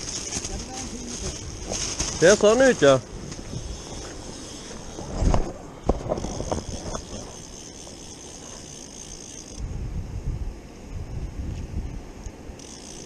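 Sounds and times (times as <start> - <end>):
wind rumble on microphone: 0.0 - 7.5, 9.6 - 12.5
fishing reel click drag buzzing: 5.9 - 9.6, 12.6 - 13.0.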